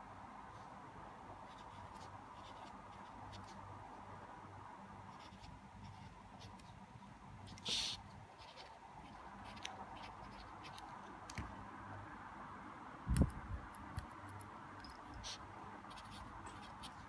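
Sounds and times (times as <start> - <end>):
pencil scratching on paper: 1.4 - 3.6, 7.5 - 11.2, 15.1 - 17.0.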